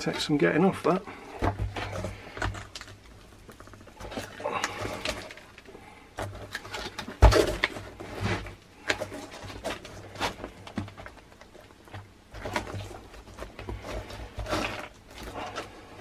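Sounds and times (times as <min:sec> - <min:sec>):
rubber sole tearing and scraping: 0:06.4 - 0:16.0.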